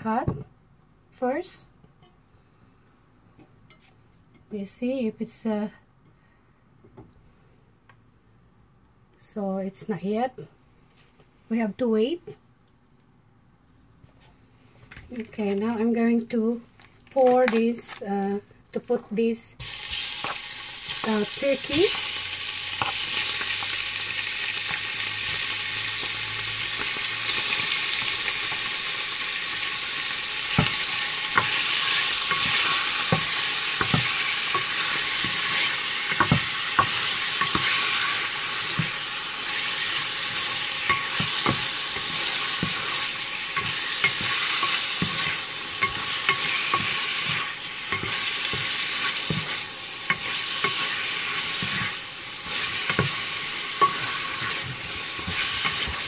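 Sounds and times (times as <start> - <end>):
meat sizzling in hot oil: 19.6 - 56.0
spatula scraping a pan: 30.4 - 56.0.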